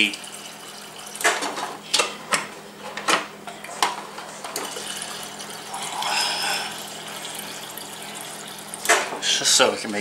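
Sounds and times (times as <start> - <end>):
water pouring into a cup: 0.0 - 1.4, 4.5 - 9.4.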